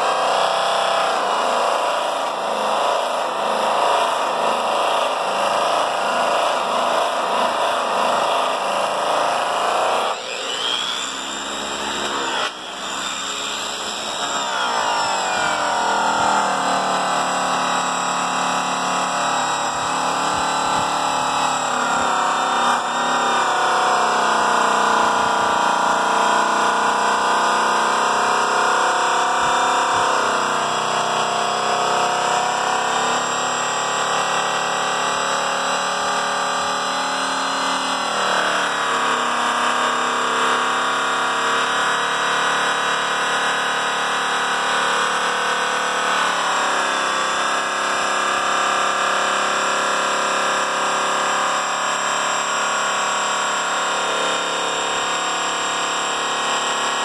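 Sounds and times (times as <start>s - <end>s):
angle polisher motor whine: 6.0s - 39.4s.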